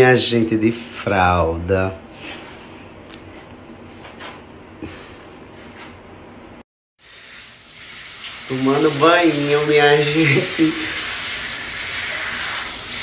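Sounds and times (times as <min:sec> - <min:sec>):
shower water running: 0:07.0 - 0:13.0.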